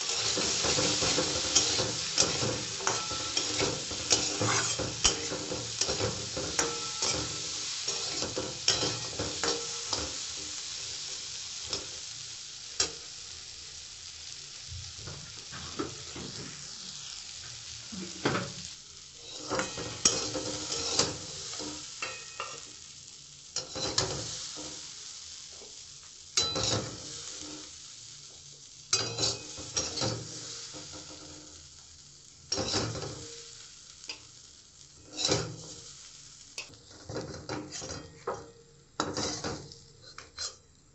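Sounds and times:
metal spatula scraping a pan: 0:00.0 - 0:10.7, 0:19.2 - 0:22.8, 0:23.6 - 0:24.9, 0:26.4 - 0:27.8, 0:28.9 - 0:31.6, 0:32.5 - 0:34.2, 0:35.0 - 0:36.0, 0:36.6 - 0:40.7
seeds sizzling in a wok: 0:00.0 - 0:40.9.

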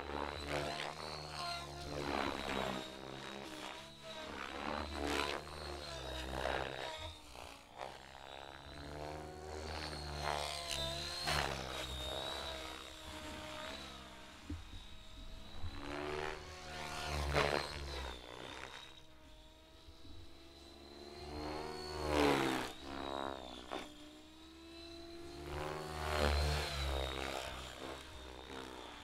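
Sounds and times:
model helicopter whine: 0:00.0 - 0:29.0.

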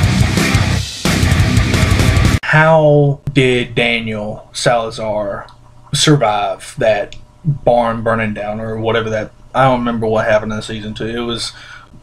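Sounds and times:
heavy metal music: 0:00.0 - 0:02.4.

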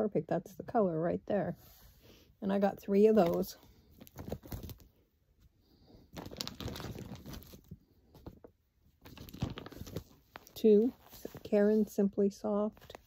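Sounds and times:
packaging rustling and crinkling: 0:03.1 - 0:05.0, 0:05.9 - 0:12.0, 0:12.8 - 0:13.0.

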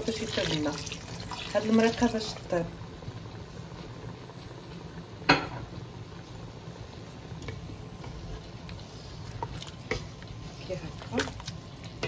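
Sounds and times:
low hum from pot: 0:00.0 - 0:12.0.

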